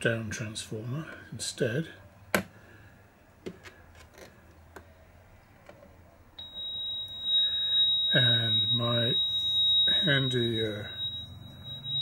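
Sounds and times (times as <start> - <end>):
steady high-pitched tone: 6.4 - 12.0.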